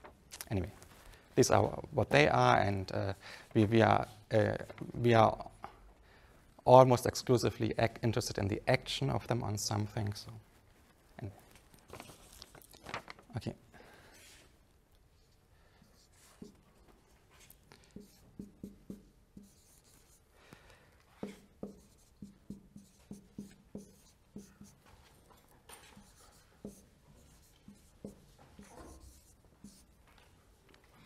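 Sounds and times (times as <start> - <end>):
marker pen on whiteboard: 14.2 - 20.3, 21.0 - 30.9.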